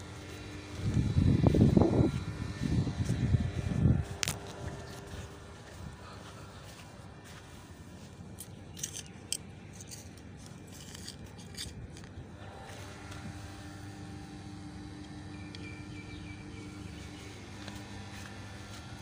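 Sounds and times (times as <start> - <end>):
soil crunching and scraping: 0.0 - 13.4
faint steady hum: 0.0 - 19.0.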